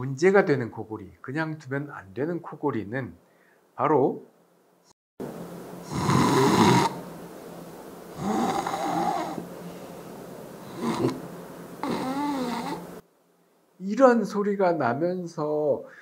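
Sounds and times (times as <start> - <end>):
person snoring loudly: 5.8 - 7.0, 8.2 - 9.4, 10.6 - 11.2, 11.8 - 12.9.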